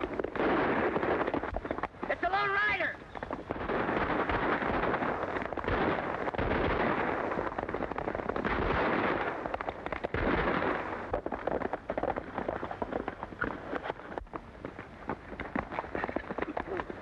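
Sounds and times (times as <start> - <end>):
gunshots: 0.0 - 12.6
horses galloping over dirt: 0.0 - 17.0.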